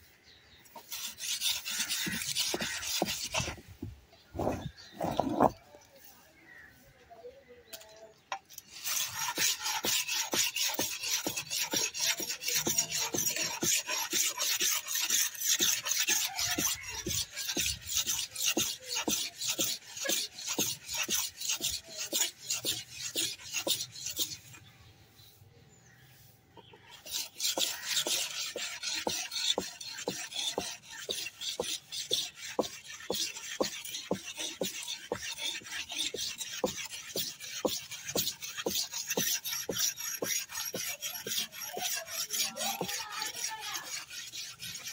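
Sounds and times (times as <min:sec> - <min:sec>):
blade scraping on stone: 0:00.2 - 0:06.7, 0:07.6 - 0:24.9, 0:26.6 - 0:44.9.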